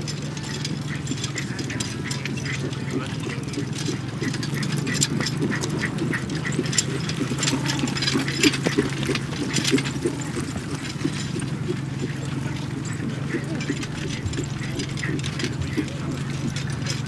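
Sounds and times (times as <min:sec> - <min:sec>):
harness and carriage rattle: 0:00.0 - 0:17.0
horse hoofbeats: 0:00.0 - 0:17.0
low hum: 0:12.5 - 0:17.0.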